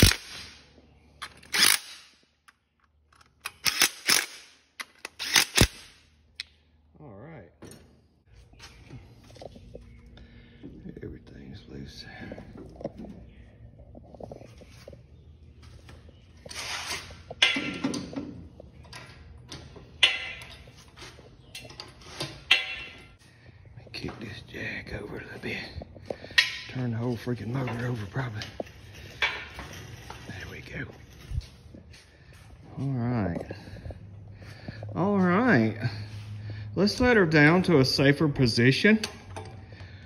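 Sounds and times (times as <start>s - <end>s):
sharp metal knocks: 22.5s - 23.1s.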